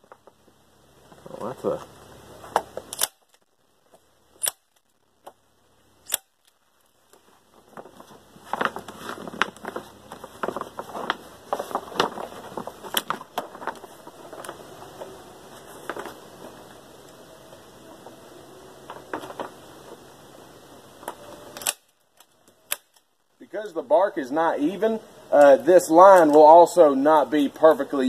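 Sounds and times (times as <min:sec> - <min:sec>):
plastic tarp crinkling: 0:06.3 - 0:17.0.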